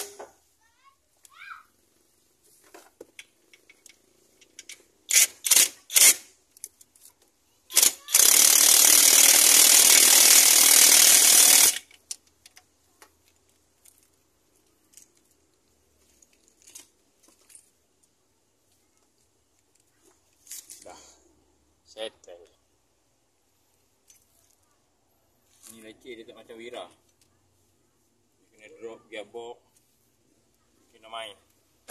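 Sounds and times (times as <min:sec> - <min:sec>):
ratchet wrench clicking: 0:04.5 - 0:06.2, 0:07.7 - 0:12.2.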